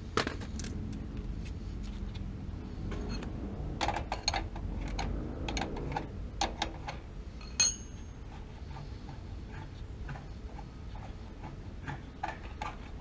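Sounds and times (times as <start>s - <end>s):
metal tools clicking and clinking: 7.4s - 8.2s.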